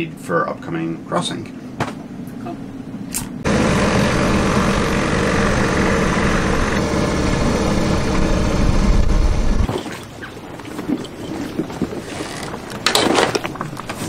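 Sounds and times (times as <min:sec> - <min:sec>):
wind: 0:02.4 - 0:14.0
outboard motor running: 0:03.4 - 0:09.7
water noise: 0:03.4 - 0:14.0.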